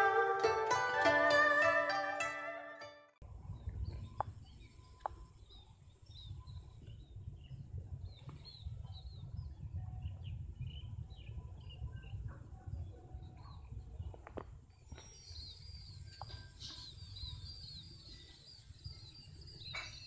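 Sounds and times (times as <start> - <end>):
small birds chirping: 3.5 - 20.0.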